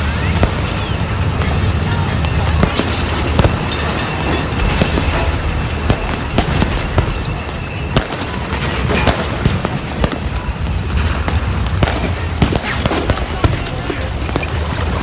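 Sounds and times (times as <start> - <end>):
continuous rushing noise: 0.0 - 15.0
fireworks bangs and crackles: 0.0 - 15.0.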